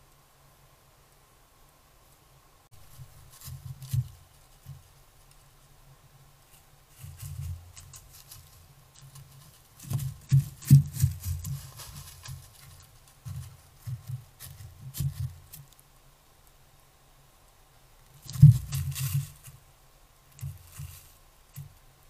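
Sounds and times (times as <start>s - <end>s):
deer walking on dry leaves: 2.8s - 5.8s, 6.4s - 15.8s, 18.1s - 19.6s, 20.4s - 21.3s.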